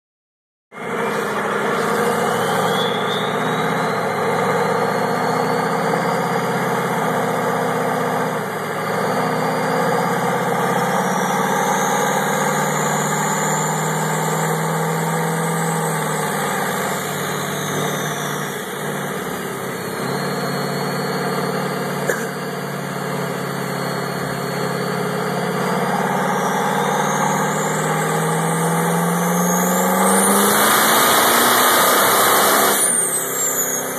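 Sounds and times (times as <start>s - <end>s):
diesel engine with high whine: 0.7s - 33.9s.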